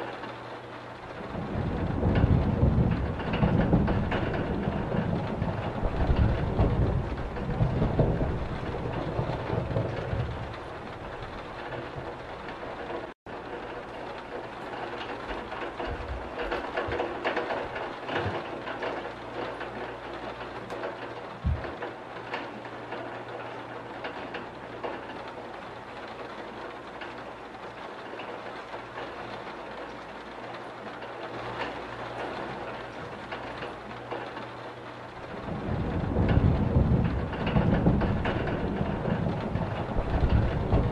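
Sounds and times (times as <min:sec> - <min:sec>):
low rumble of thunder: 0:00.0 - 0:40.9
steady rain falling: 0:00.0 - 0:40.9.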